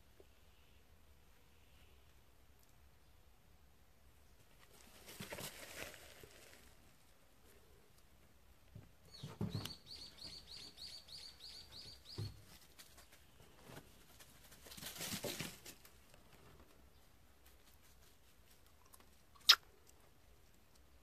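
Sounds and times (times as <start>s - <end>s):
rustling: 4.4s - 10.3s, 11.8s - 21.0s.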